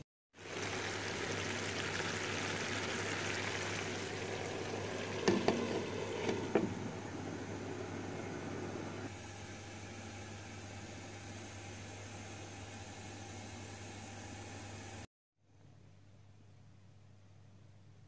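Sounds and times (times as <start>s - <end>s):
vegetables sizzling in a frying pan: 0.4s - 8.2s
glass lid knocking against pan: 5.2s - 6.8s.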